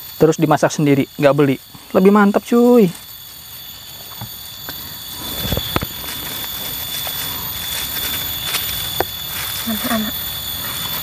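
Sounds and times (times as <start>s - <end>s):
high-pitched insect chorus: 0.0s - 11.0s.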